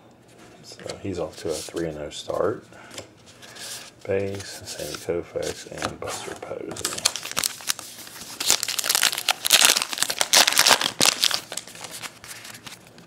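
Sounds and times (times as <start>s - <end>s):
foil wrapper crinkling and tearing: 6.7s - 13.0s.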